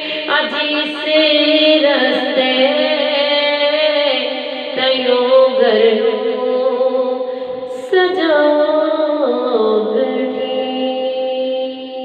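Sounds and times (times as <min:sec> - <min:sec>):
woman taking a breath: 0:00.0 - 0:00.3, 0:04.3 - 0:04.8, 0:07.2 - 0:07.7
woman singing devotional song: 0:00.0 - 0:12.0.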